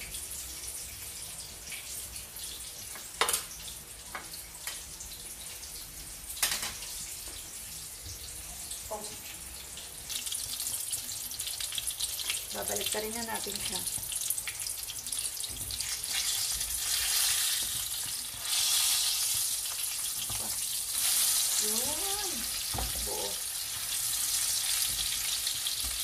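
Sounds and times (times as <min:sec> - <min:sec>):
omelet sizzling in oil: 0:00.0 - 0:26.0.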